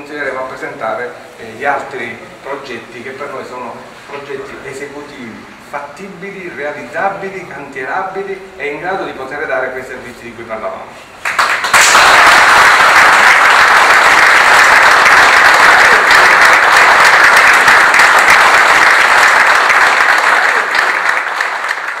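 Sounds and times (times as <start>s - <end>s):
audience applauding: 11.2s - 22.0s.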